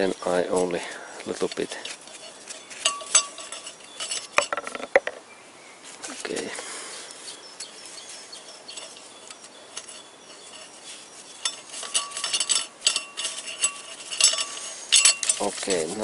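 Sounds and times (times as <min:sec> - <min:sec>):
steel clinking and scraping: 0:00.0 - 0:05.2, 0:05.8 - 0:16.0
ringing metallic clinks: 0:01.5 - 0:04.7, 0:08.3 - 0:16.0.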